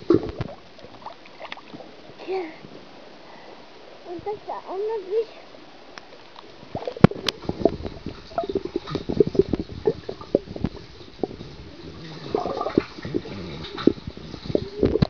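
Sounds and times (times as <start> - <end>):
underwater bubbling and gurgling: 0.0 - 15.0
splashing clicks: 6.0 - 15.0.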